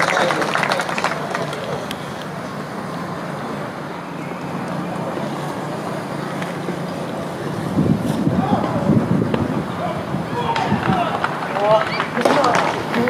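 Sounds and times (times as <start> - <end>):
spectators chatting: 0.0 - 13.0
wind noise on microphone: 7.5 - 11.2.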